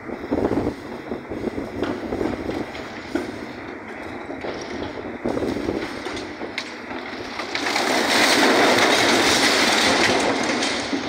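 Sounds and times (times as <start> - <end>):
rattling collapse: 1.8 - 11.0
debris crashing and clattering: 5.5 - 11.0.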